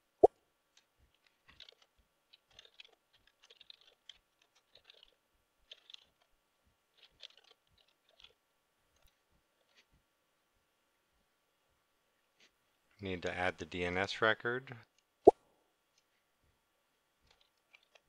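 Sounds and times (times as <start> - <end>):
faint keyboard typing: 0.7 - 10.0, 17.2 - 18.0.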